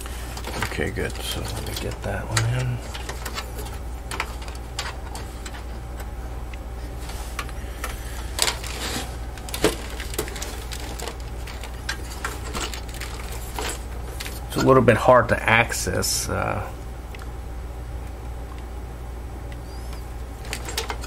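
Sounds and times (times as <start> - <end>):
steady low hum: 0.0 - 21.0
metal drive cage clattering: 7.3 - 14.7, 19.8 - 21.0.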